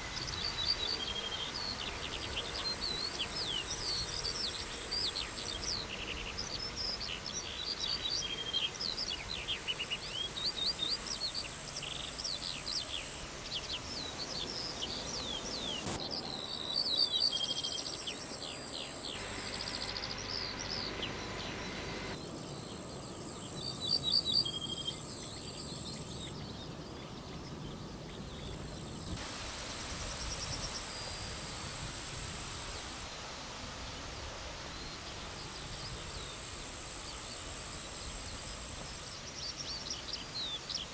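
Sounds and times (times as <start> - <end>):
high insect buzz: 0.0 - 13.4, 14.0 - 22.2, 29.2 - 33.1
small birds chirping: 0.0 - 29.2.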